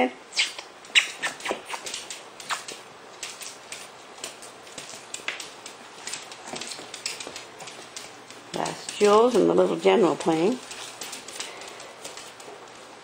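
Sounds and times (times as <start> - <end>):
puppies scuffling with clicks and taps: 0.8 - 13.0.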